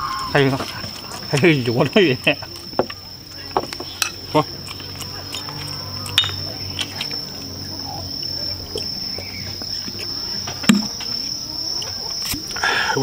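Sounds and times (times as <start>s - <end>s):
eating and drinking noises: 0.0s - 13.0s
insects chirping: 0.0s - 13.0s
sharp knock: 10.7s - 11.0s.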